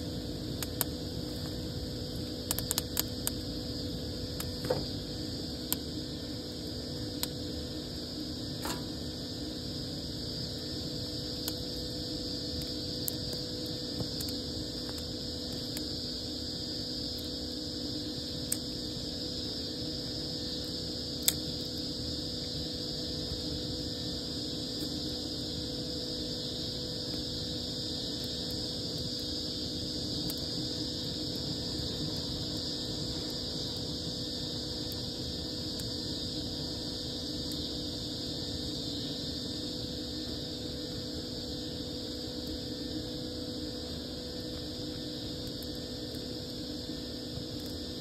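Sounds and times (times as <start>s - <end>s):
steady hum: 0.0s - 48.0s
wood fire crackling and popping: 0.1s - 16.3s, 18.0s - 19.1s, 20.0s - 21.9s, 28.0s - 37.7s.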